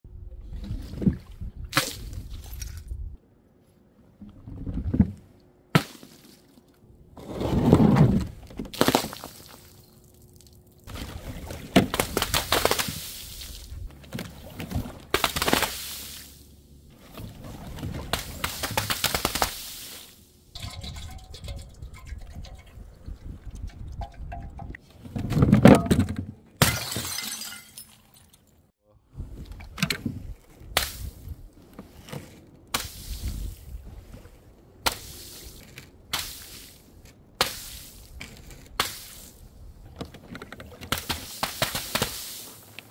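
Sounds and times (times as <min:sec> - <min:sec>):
liquid splashing: 0:18.3 - 0:24.7
glass bottles shattering: 0:26.6 - 0:28.4.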